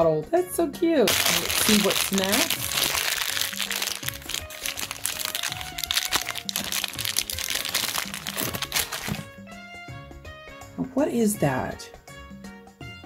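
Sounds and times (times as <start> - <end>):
light background music: 0.0 - 13.0
plastic wrapper crinkling: 1.1 - 9.3.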